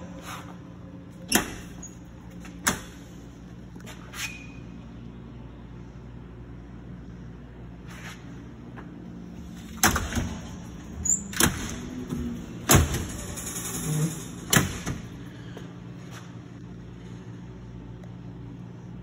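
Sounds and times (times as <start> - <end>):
metal oven doors clanking: 9.6 - 15.2.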